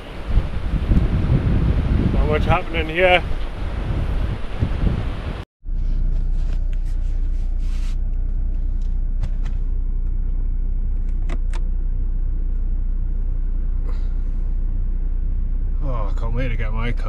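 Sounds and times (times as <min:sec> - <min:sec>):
car engine idling: 0:05.6 - 0:17.0.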